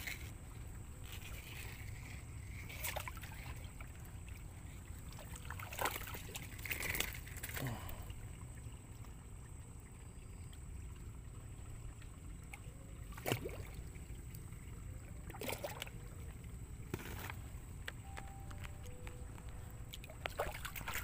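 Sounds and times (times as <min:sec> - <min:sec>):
fish splashing and thrashing: 0:00.0 - 0:09.0, 0:11.1 - 0:21.0
steady low rumble: 0:15.9 - 0:21.0.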